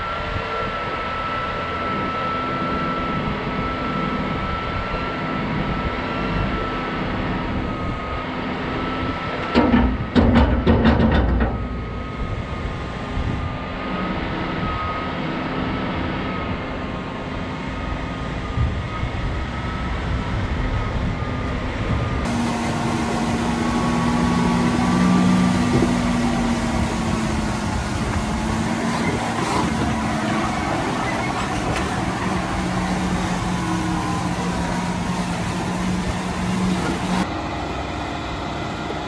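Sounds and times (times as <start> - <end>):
feed mixer droning and whining: 0.0 - 9.4, 22.2 - 39.0
loud clattering knocks: 9.6 - 11.7.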